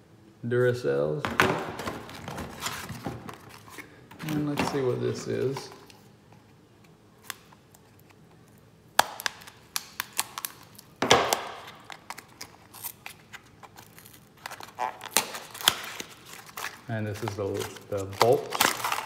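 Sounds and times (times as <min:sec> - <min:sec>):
paper rustling: 0:01.8 - 0:06.0, 0:11.7 - 0:19.0
cardboard packaging snapping: 0:09.0 - 0:19.0.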